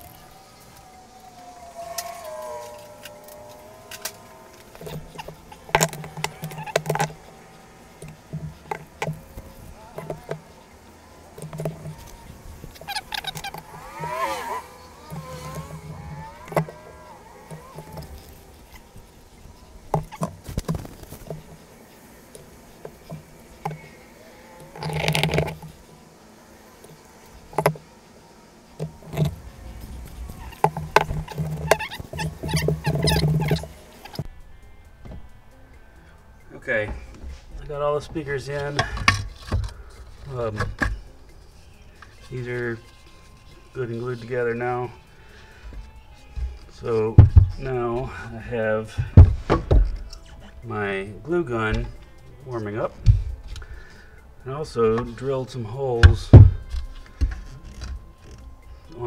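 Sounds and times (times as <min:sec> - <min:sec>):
plastic tubes clacking: 0:00.0 - 0:26.0, 0:28.8 - 0:34.3.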